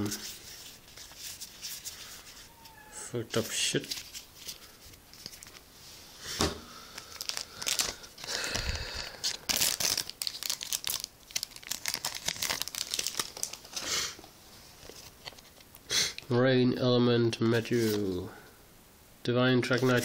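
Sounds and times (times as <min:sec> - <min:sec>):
cards rustling: 0:03.4 - 0:05.7, 0:06.9 - 0:13.9, 0:17.5 - 0:18.2
foil wrapper tearing and crinkling: 0:06.9 - 0:13.9.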